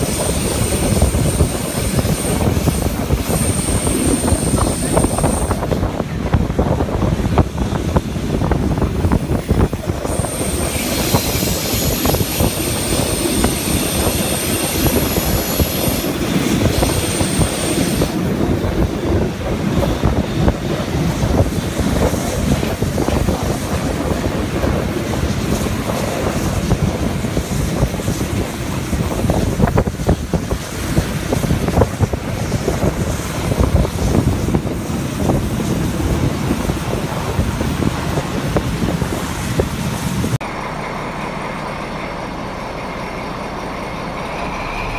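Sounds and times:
high-pitched wheel squeal: 0:00.0 - 0:05.6
wind buffeting microphone: 0:00.0 - 0:40.4
train wheels rumbling on rails: 0:00.0 - 0:44.9.

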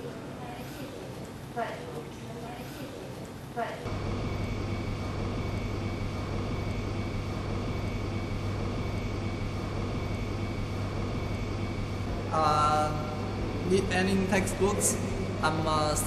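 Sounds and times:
low hum: 0:03.9 - 0:16.0.

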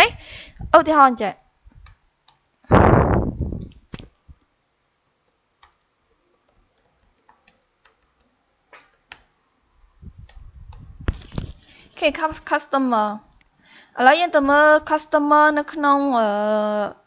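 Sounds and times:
keyboard typing: 0:06.4 - 0:09.3.

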